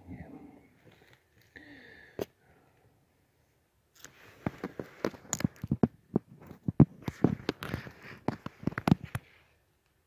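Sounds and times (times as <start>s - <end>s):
sharp knocks and crunches: 4.4s - 9.2s.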